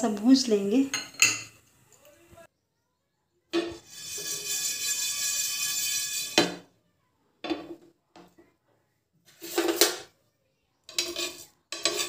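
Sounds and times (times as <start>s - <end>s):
spatula scraping seeds in a pan: 3.6s - 6.6s, 9.2s - 10.0s, 10.8s - 12.0s.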